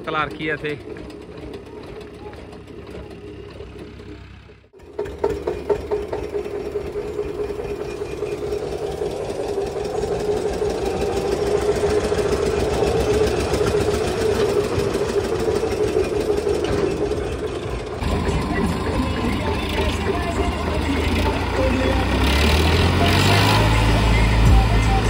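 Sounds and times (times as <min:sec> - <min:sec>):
tractor diesel engine chugging: 0:00.0 - 0:25.0.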